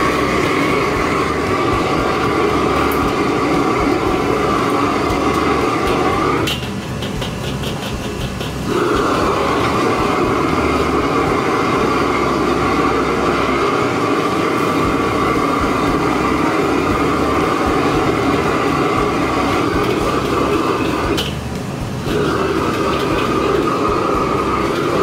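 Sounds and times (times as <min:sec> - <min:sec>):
gas burner roaring: 0:00.0 - 0:25.0
metal clank: 0:05.1 - 0:09.8.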